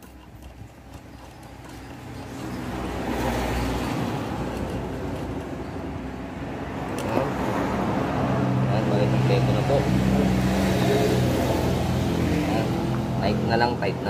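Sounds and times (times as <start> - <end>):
metal bolts clicking: 0.0 - 6.0
vehicle engine rumble: 0.0 - 14.0.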